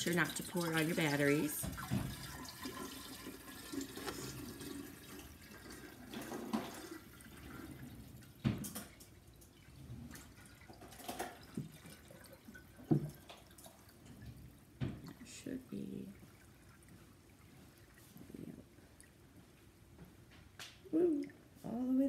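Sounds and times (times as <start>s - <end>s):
water pouring into a glass jar: 0.0s - 19.2s.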